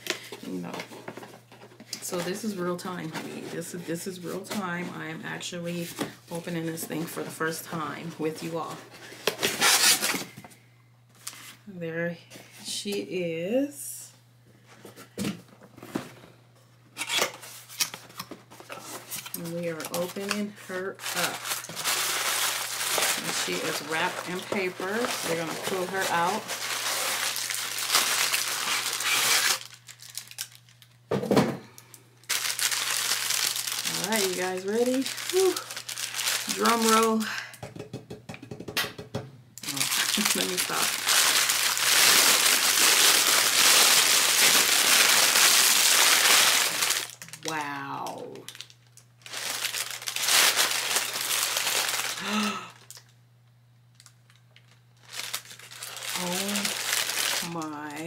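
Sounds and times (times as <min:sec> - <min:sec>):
wrapping paper crinkling: 0:08.4 - 0:10.3, 0:17.0 - 0:31.0, 0:32.2 - 0:37.3, 0:39.6 - 0:47.7, 0:48.5 - 0:53.1, 0:53.9 - 0:58.0
person humming: 0:35.3 - 0:35.7.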